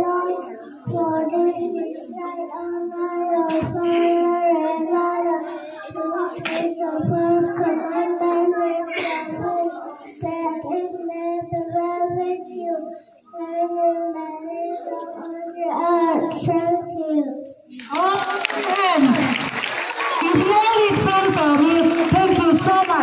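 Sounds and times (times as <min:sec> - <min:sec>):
children singing: 0:00.0 - 0:13.6.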